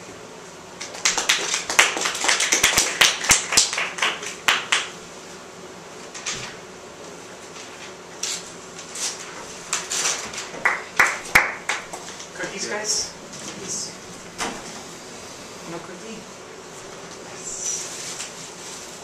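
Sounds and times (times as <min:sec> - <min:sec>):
people clapping: 0:00.8 - 0:04.9, 0:10.6 - 0:12.2.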